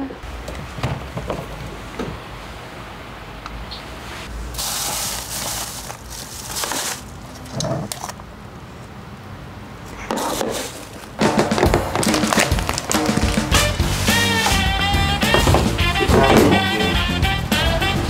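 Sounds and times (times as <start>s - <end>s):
plastic bag rustling: 4.3s - 8.2s, 9.9s - 17.0s
bottles knocking in refrigerator: 15.2s - 16.8s.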